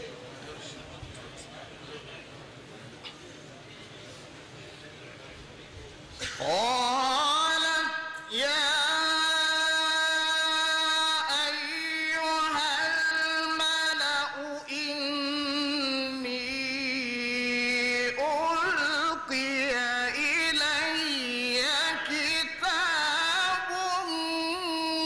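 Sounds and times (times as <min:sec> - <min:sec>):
man reciting melodically: 0:06.2 - 0:25.0.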